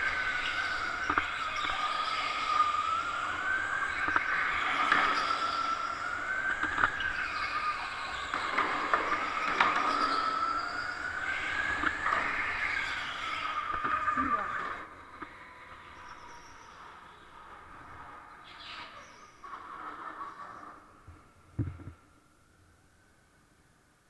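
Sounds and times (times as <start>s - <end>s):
electric go-kart motor whining: 0.0s - 18.8s.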